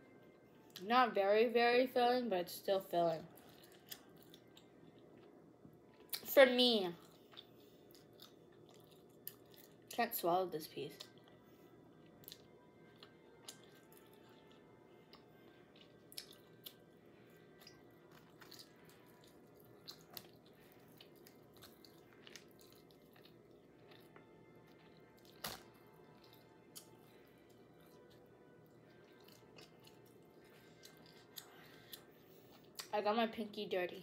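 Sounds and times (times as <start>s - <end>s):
faint steady hum: 0.0s - 34.0s
chewing clicks and smacks: 7.0s - 9.9s, 12.2s - 16.8s, 17.5s - 27.0s.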